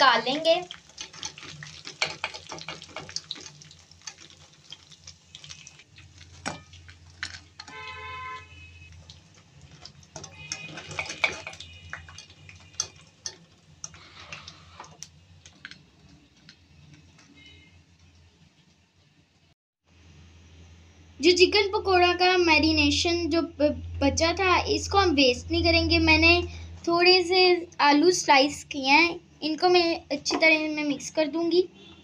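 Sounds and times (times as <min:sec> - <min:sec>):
deep-frying oil sizzling: 0:00.0 - 0:19.6
wire skimmer scraping pan: 0:05.4 - 0:15.8.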